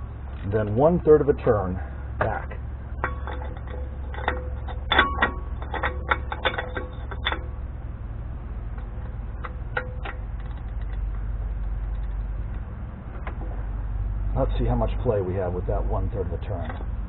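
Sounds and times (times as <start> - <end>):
steady low hum: 0.0 - 17.0
ratchet clicking: 3.0 - 7.6.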